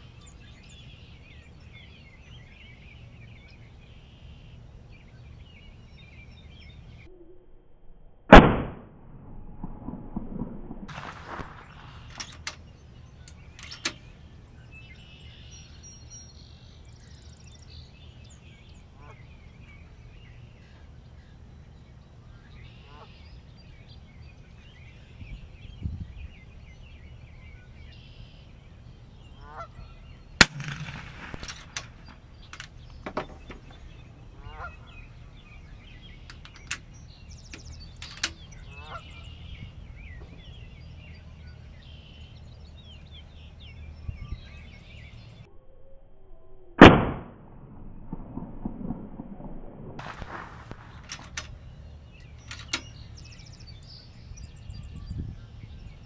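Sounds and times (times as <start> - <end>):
air rifle shot: 8.3 - 10.3, 30.4 - 32.3, 46.8 - 51.4
small clicks: 10.9 - 14.1, 30.4 - 33.9, 36.2 - 38.6, 50.0 - 53.1
geese honking: 29.4 - 30.1, 33.2 - 36.3, 38.5 - 39.6.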